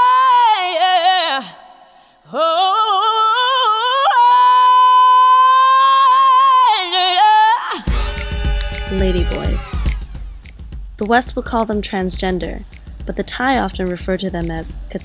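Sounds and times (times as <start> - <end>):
high voice singing unaccompanied: 2.3 - 10.0.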